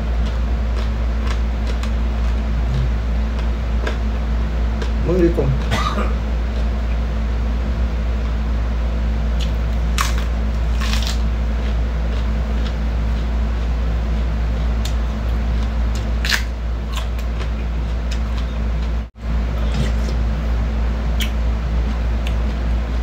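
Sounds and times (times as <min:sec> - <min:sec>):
steady low hum: 0:00.0 - 0:23.0
lettuce being chewed: 0:00.1 - 0:04.2, 0:04.8 - 0:05.0, 0:09.4 - 0:20.6, 0:21.2 - 0:23.0.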